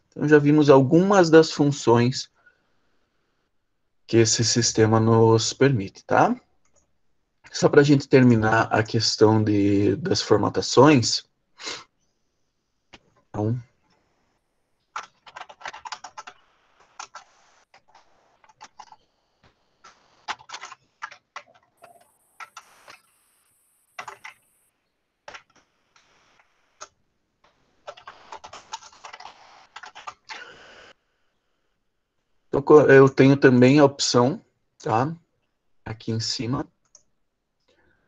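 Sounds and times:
typing on computer keyboard: 0:14.9 - 0:19.0, 0:19.8 - 0:24.7, 0:27.8 - 0:30.4.

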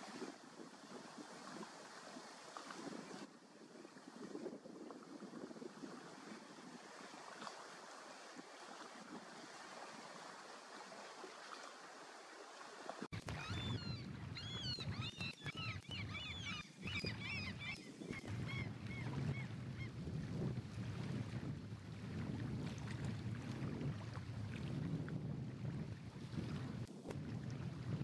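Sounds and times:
wind rumbling on microphone: 0:00.0 - 0:10.3, 0:13.0 - 0:28.0
wind and water hiss: 0:00.0 - 0:28.0
birds chirping: 0:13.2 - 0:19.9.

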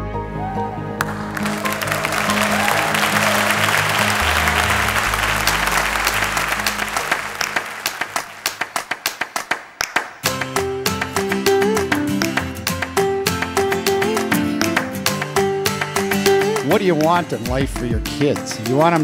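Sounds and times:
congregation applauding: 0:01.0 - 0:16.0.

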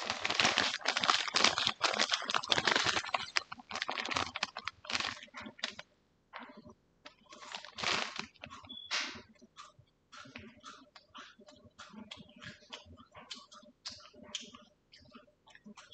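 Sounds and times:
close clicking and crackling: 0:00.0 - 0:15.9.

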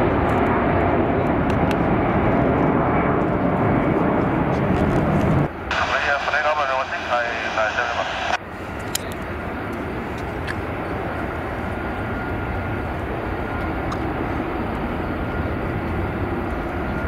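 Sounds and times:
jet engine rumble: 0:00.0 - 0:17.0.

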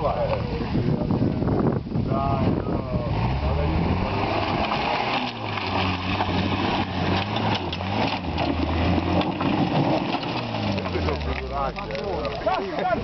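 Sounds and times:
tyres scrabbling over earth and stones: 0:04.0 - 0:13.0.

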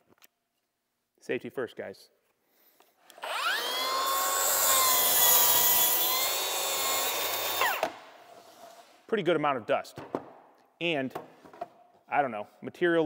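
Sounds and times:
track saw cutting wood: 0:03.2 - 0:08.0.

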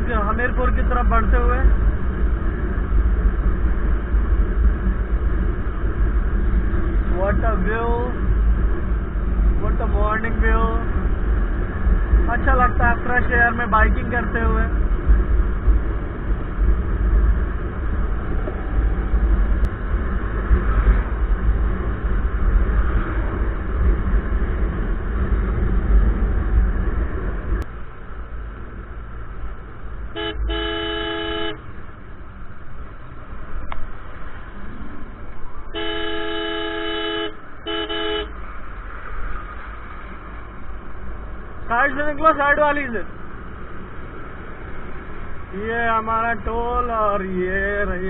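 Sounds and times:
wind rumbling on microphone: 0:00.0 - 0:30.6
vehicle horn honking: 0:30.1 - 0:31.6, 0:35.7 - 0:38.4.

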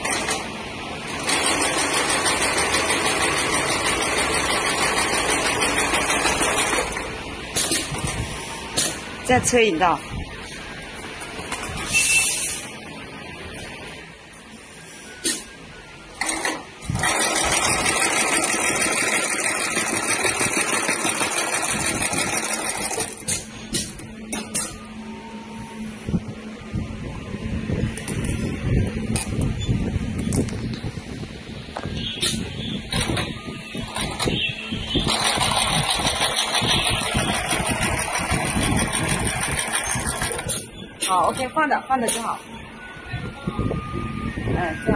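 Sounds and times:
sewing machine stitching: 0:01.1 - 0:07.9, 0:16.2 - 0:23.4, 0:32.9 - 0:40.7.

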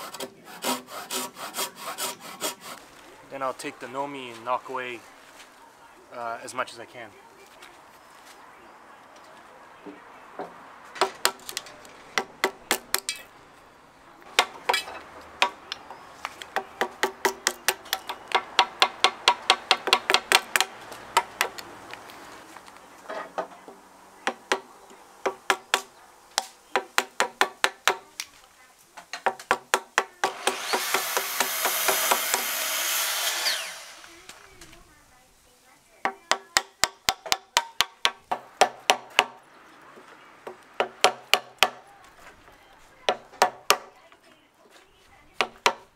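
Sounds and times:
hammer striking chisel: 0:16.5 - 0:21.6, 0:29.1 - 0:32.5, 0:43.1 - 0:43.9.

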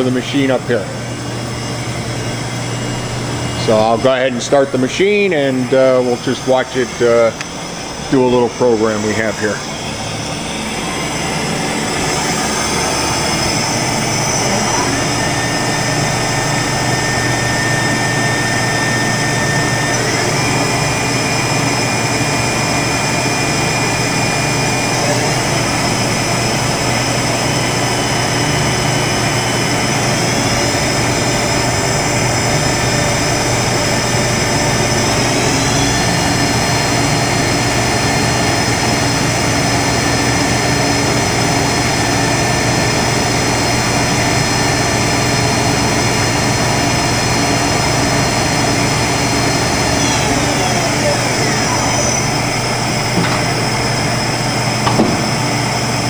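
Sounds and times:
high spindle whine: 0:00.0 - 0:56.0
low machine hum: 0:00.0 - 0:56.0.

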